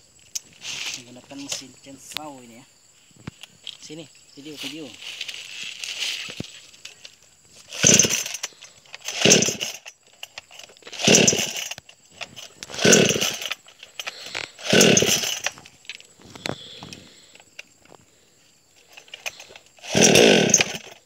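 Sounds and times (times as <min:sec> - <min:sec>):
chainsaw engine turning over: 0:05.3 - 0:18.0, 0:18.8 - 0:21.0
chainsaw recoil starter pulls: 0:05.9 - 0:17.9, 0:18.8 - 0:21.0.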